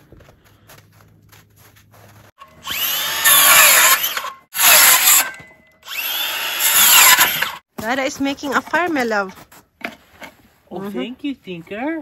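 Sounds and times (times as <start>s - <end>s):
power tool running: 2.4s - 7.6s.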